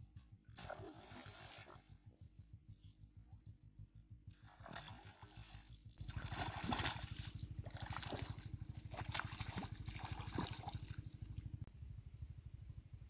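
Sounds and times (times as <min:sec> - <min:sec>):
fast low pulsing: 0:00.0 - 0:13.0
fish splashing in water: 0:04.4 - 0:11.4.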